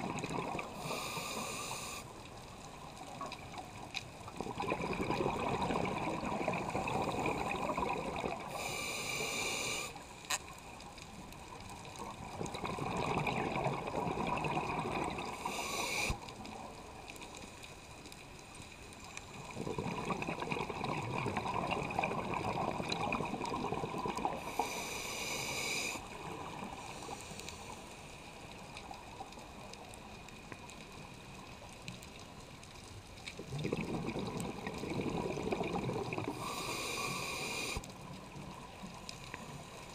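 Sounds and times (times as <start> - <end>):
regulator bubbling underwater: 0.0 - 1.1, 4.3 - 8.7, 12.0 - 15.8, 19.4 - 24.7, 33.4 - 37.2
short high hisses: 15.4 - 16.2.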